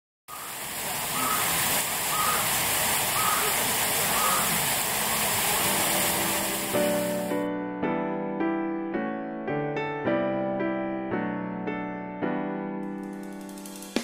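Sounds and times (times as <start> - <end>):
running water rushing: 0.3 - 7.4
faint voices: 3.2 - 6.0.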